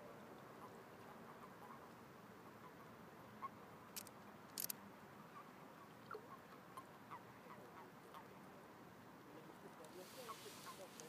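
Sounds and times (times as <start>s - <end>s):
sharp clicks: 4.0s - 4.8s.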